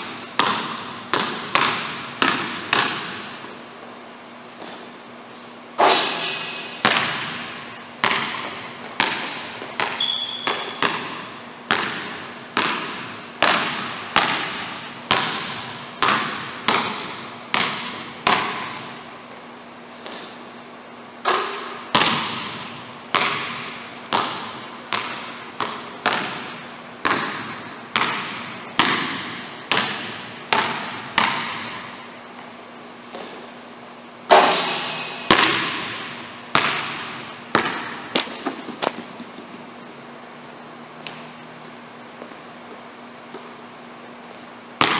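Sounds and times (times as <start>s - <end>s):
basketball bouncing on wooden floor: 0.0s - 3.6s, 4.6s - 4.9s, 6.7s - 19.0s, 20.0s - 20.4s, 21.2s - 32.0s, 33.1s - 33.5s, 34.3s - 39.7s, 42.2s - 43.6s.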